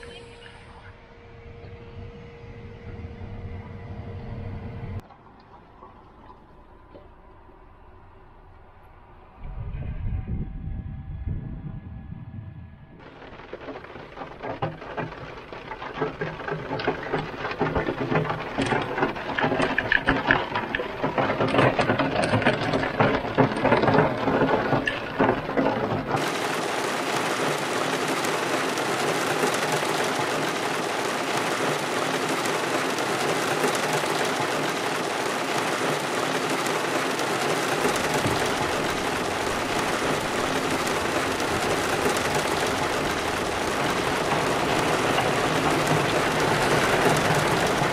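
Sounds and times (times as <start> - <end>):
rain pattering on car roof: 13.0 - 47.9
steady downpour hiss: 13.0 - 47.9.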